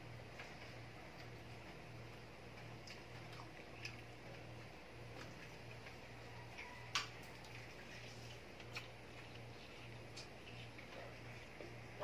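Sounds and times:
fingers picking at food: 2.5s - 11.5s.

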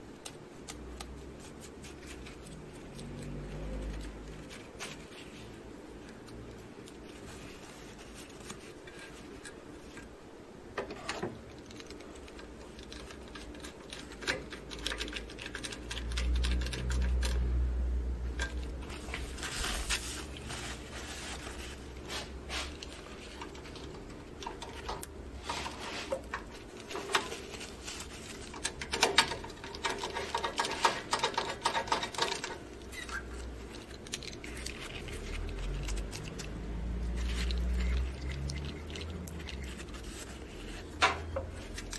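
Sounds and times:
paper towel rustling and scraping: 6.8s - 10.0s, 18.8s - 24.0s, 25.3s - 28.8s, 33.3s - 41.9s.

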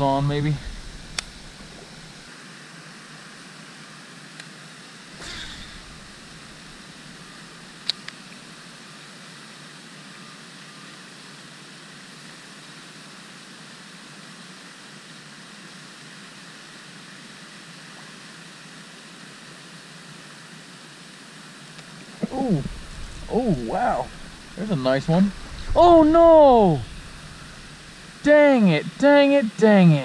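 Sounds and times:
fountain spray hissing: 5.1s - 7.8s, 18.5s - 30.0s.

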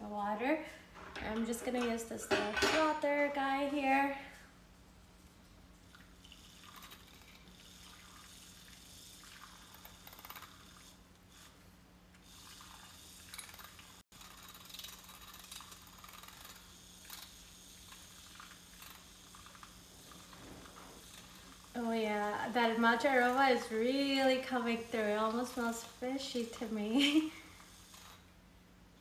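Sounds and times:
milk frother whirring: 5.9s - 28.4s.

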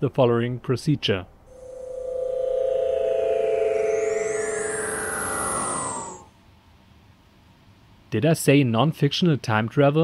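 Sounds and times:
synthesized transporter hum: 1.4s - 6.3s
falling synth sweep: 1.5s - 6.3s
high rising whistles: 1.5s - 6.3s.

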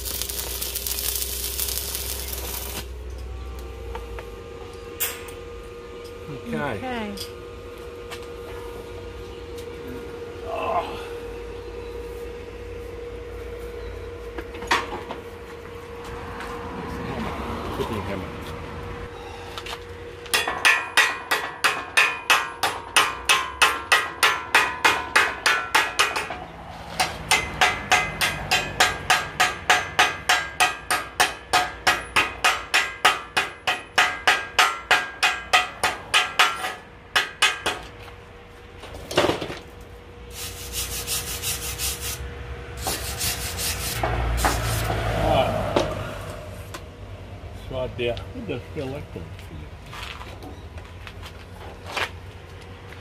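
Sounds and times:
hammer striking steel: 20.3s - 38.0s
hiss bursts: 40.3s - 42.2s.

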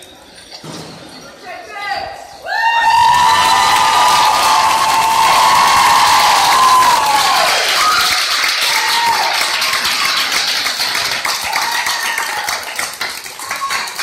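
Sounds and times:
crowd cheering: 2.4s - 14.0s
crowd clapping: 3.0s - 14.0s.

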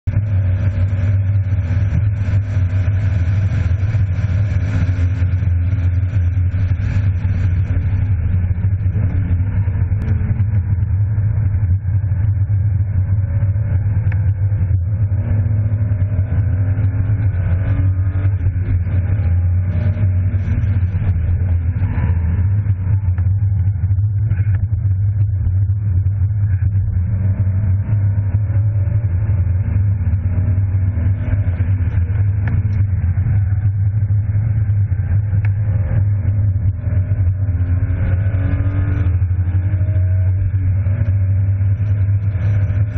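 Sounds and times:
car engine accelerating and shifting: 0.0s - 42.9s
road noise drone: 0.0s - 42.9s.

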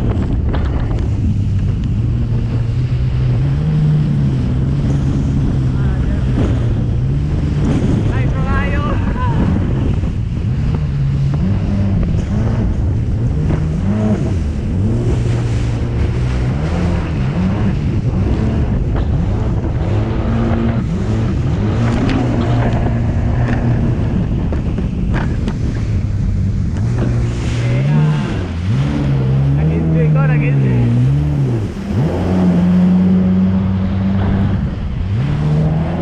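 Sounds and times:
jet ski engine running: 0.0s - 36.0s
water rushing past hull: 0.0s - 36.0s
wind buffeting microphone: 0.0s - 36.0s.

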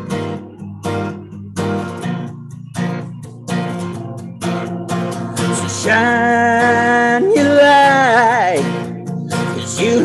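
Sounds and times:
acoustic guitar strummed slowly: 0.0s - 10.0s.

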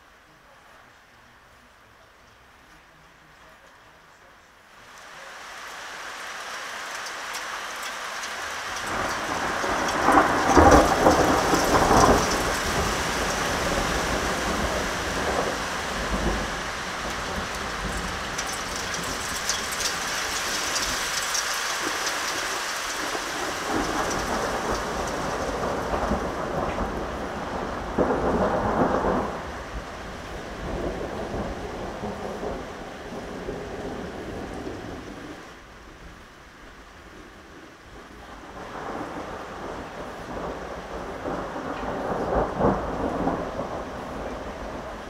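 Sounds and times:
steady rain: 0.0s - 45.0s
thunder clap rumbling: 8.2s - 35.4s, 38.2s - 45.0s
low rolls of thunder: 8.3s - 35.5s, 37.2s - 45.0s.

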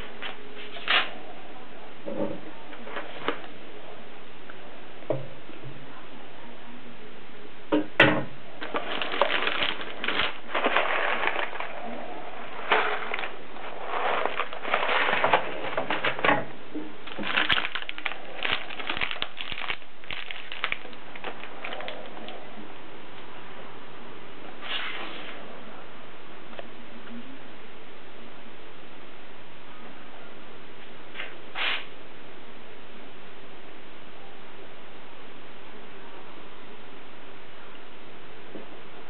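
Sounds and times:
pasta box rustling and rattling: 8.6s - 22.4s.

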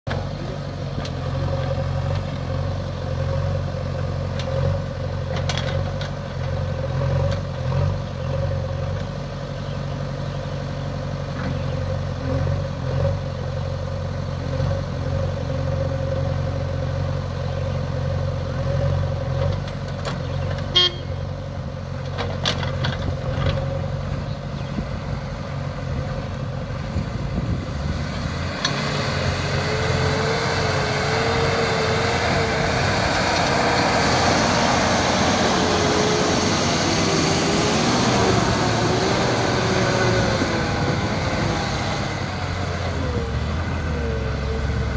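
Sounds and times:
diesel engines running: 0.1s - 44.9s
thin engine whine: 22.1s - 44.9s.

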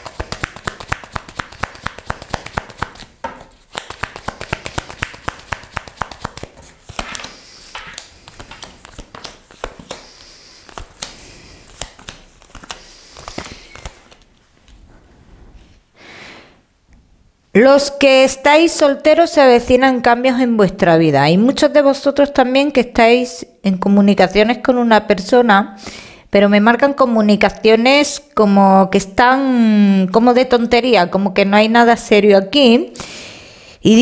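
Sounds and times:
cards being shuffled by hand: 0.0s - 14.9s.

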